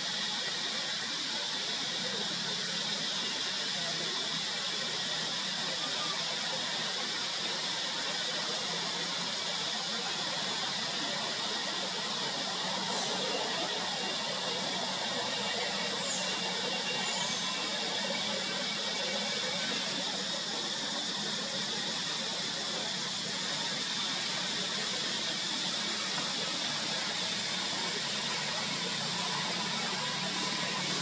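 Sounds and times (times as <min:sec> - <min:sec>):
forest ambience hiss and drone: 0:00.0 - 0:31.0.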